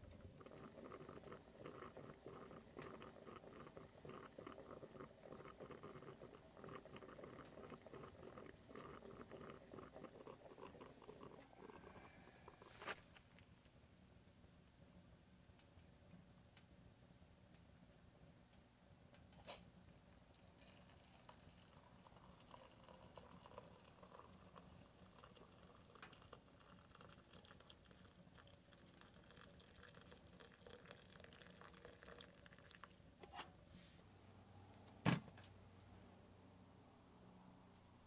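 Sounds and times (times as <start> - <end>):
coffee trickling into metal cup: 0.2 - 12.8, 20.3 - 33.0.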